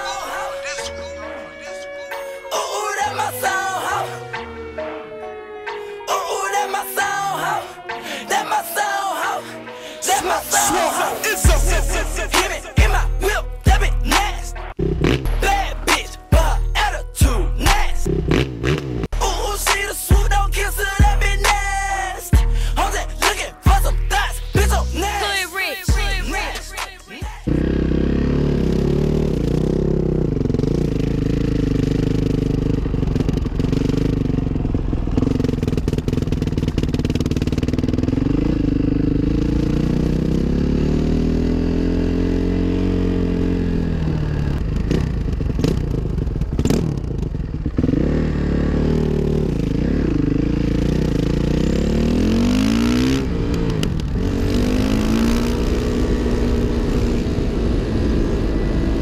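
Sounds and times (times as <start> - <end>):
motorcycle engine revving: 11.4 - 16.0, 17.7 - 19.2, 27.4 - 59.0.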